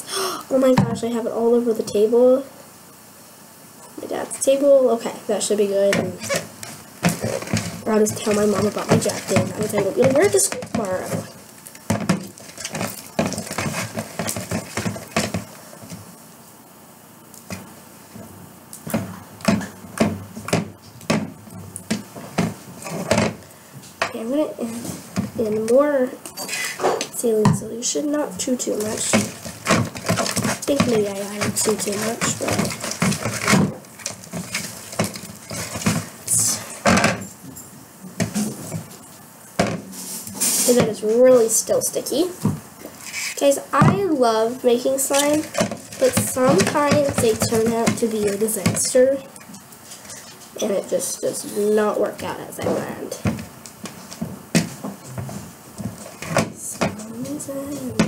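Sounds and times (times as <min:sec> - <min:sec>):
stick scraping bowl stirring slime: 0:04.0 - 0:16.1, 0:17.4 - 0:23.5, 0:24.1 - 0:37.4, 0:38.2 - 0:58.0
stick scraping: 0:06.0 - 0:16.0, 0:28.6 - 0:36.9, 0:39.9 - 0:41.0, 0:42.9 - 0:43.5.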